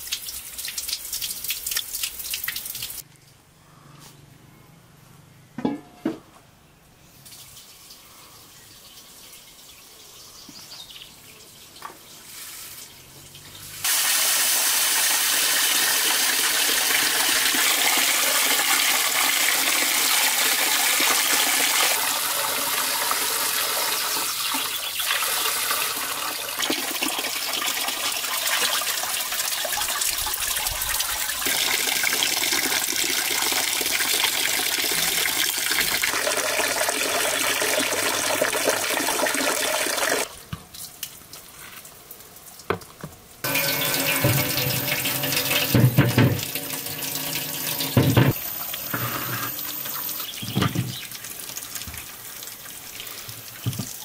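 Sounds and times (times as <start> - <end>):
tap water running and splashing: 0.0 - 3.0, 13.8 - 40.3, 42.6 - 54.0.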